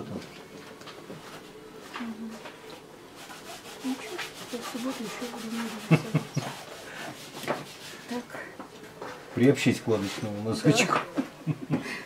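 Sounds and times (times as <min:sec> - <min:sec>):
palette knife scraping paint on canvas: 0:03.2 - 0:08.2.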